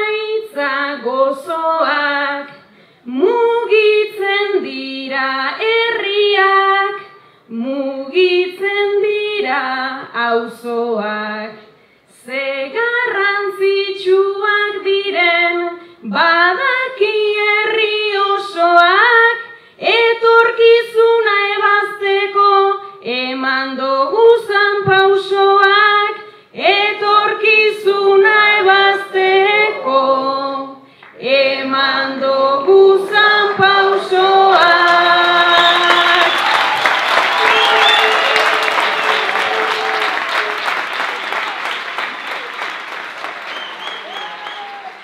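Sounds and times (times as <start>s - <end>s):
woman singing unaccompanied: 0.0s - 11.6s, 12.2s - 36.4s
applause: 33.0s - 45.0s.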